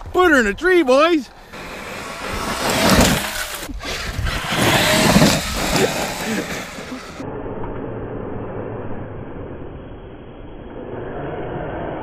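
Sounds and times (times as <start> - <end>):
tyres crunching gravel: 0.9 - 7.2
rc truck driving over gravel: 1.4 - 7.2.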